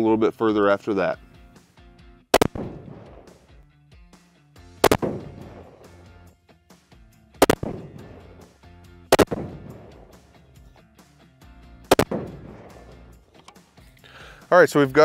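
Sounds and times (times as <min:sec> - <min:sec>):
rifle shots with echo: 0:02.4 - 0:03.4, 0:04.8 - 0:05.9, 0:07.4 - 0:08.4, 0:09.1 - 0:10.2, 0:11.9 - 0:13.1.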